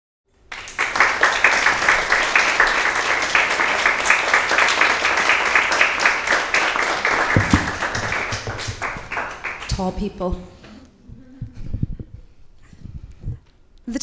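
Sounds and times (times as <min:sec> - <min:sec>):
audience applauding: 0:00.4 - 0:10.0.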